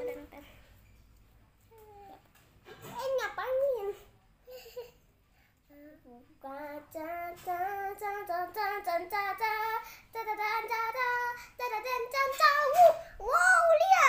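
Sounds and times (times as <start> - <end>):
girl singing held notes: 5.7 - 14.0.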